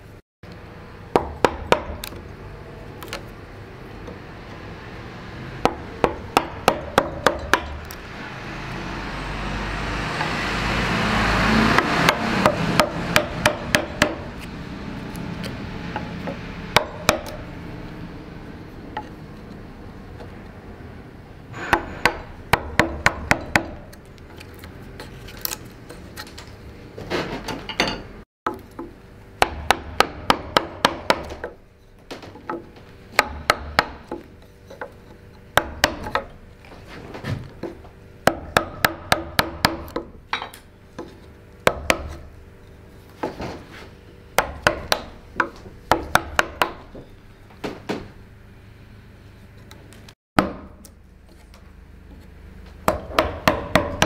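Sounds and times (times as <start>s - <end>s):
mallet knocking on gouge handle: 52.9s - 54.0s.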